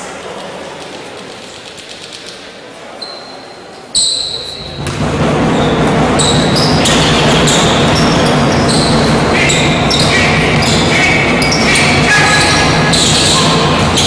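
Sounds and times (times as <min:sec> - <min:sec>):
hall noise: 0:04.3 - 0:14.0
ball bouncing: 0:04.6 - 0:14.0
sneakers squeaking on wooden court: 0:05.6 - 0:14.0.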